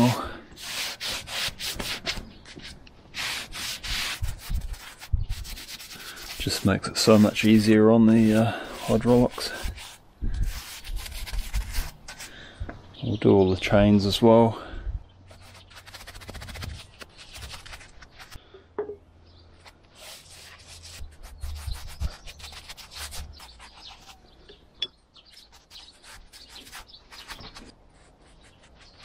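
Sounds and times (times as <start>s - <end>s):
brush scrubbing metal chain: 5.8s - 10.0s.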